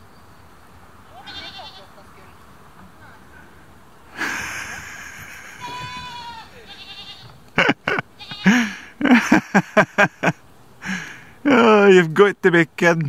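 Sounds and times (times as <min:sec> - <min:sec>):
goats bleating: 0:01.1 - 0:01.9, 0:04.4 - 0:08.9.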